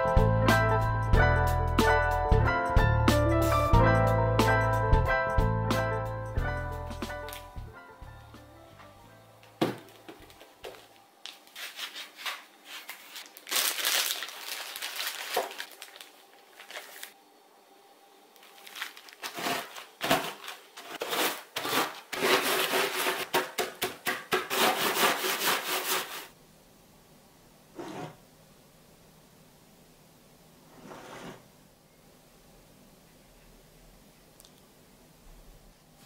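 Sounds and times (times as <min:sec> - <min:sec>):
plastic wrapping crinkling: 0:09.5 - 0:17.2, 0:18.4 - 0:23.4
biscuits crushed with rolling pin: 0:18.5 - 0:26.3.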